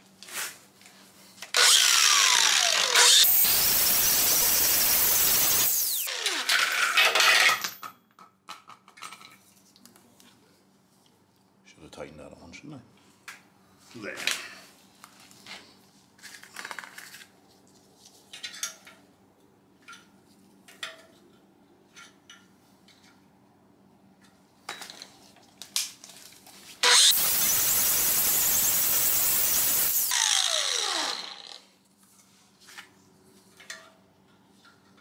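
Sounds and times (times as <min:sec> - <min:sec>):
angle grinder grinding metal: 0:01.5 - 0:07.5, 0:26.8 - 0:31.6
grinder spinning down whine: 0:01.6 - 0:06.7, 0:26.8 - 0:31.6.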